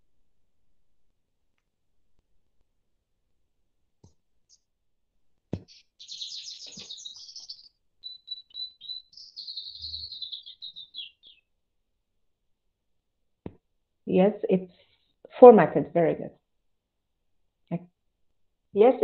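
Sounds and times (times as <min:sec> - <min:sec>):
songbird warbling: 0:05.6 - 0:11.4.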